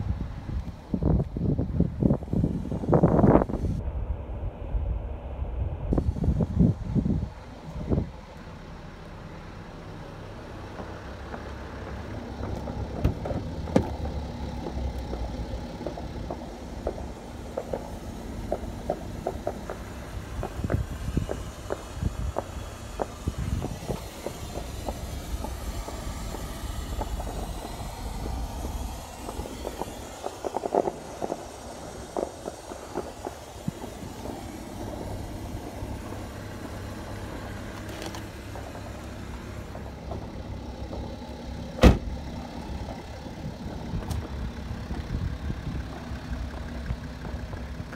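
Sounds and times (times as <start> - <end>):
diesel engine idling: 0.0 - 47.9
car door slamming: 13.0 - 14.0, 41.8 - 42.2.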